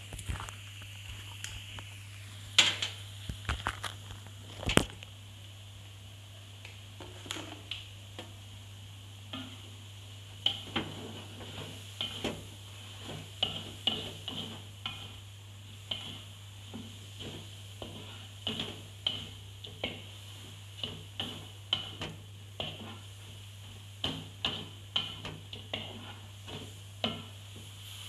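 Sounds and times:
metal spatula scraping wok: 10.4s - 28.0s.

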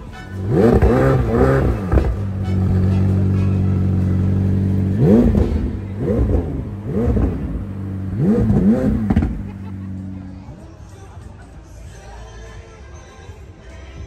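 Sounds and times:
car engine idling: 0.0s - 11.2s
engine revving: 0.3s - 10.3s.

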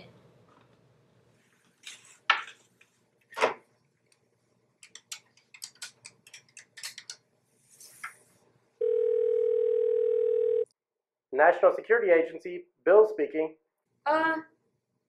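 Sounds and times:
telephone ringing tone: 8.8s - 10.7s.

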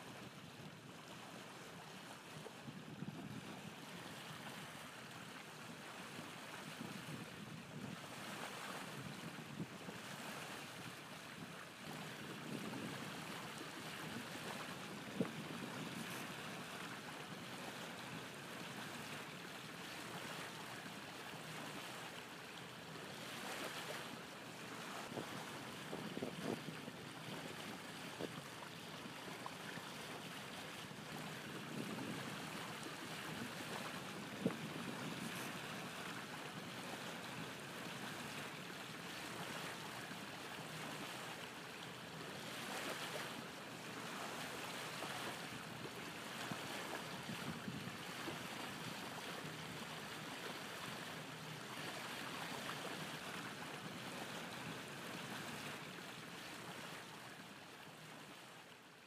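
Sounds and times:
waves rushing: 11.9s - 41.5s.

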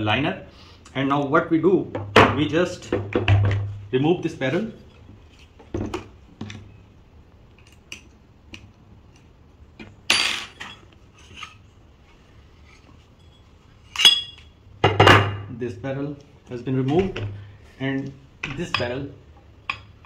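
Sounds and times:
ringing metal clink: 13.2s - 14.5s.

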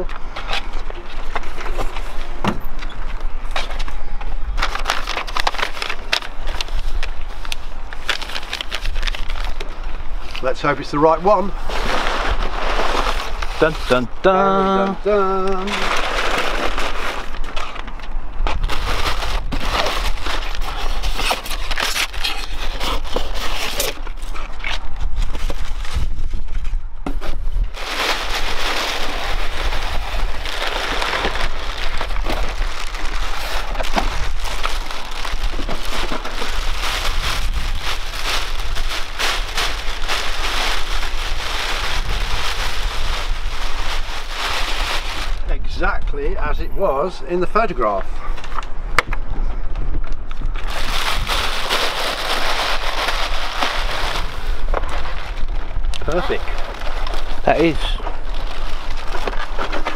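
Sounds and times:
plastic and paper crinkling: 3.2s - 45.5s, 50.4s - 59.9s
steady low rumble: 24.2s - 59.7s.

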